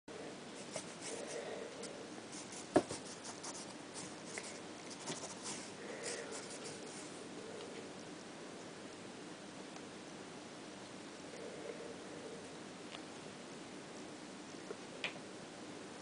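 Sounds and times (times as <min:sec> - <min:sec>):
kitten paws patting and scrabbling: 0:02.4 - 0:05.7.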